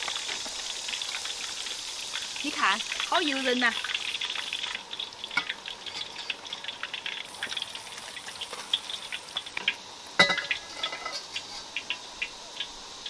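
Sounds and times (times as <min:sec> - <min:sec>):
hot oil sizzling and crackling: 0:00.0 - 0:13.0.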